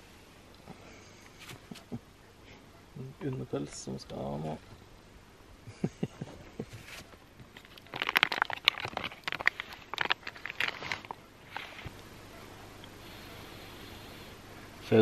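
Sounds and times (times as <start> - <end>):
foil pouch crinkling: 6.8 - 12.0.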